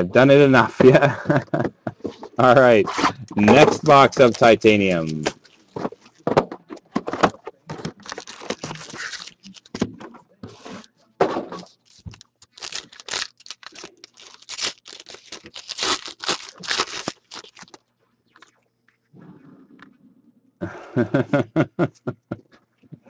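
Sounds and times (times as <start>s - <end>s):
foil wrappers ripping and crinkling: 3.6s - 6.1s, 7.8s - 9.8s, 11.6s - 17.8s.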